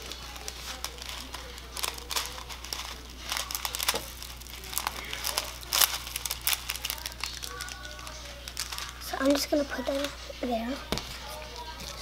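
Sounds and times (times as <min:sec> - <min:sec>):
foam beads pouring: 0:00.0 - 0:09.5
plastic bag crinkling: 0:00.0 - 0:12.0.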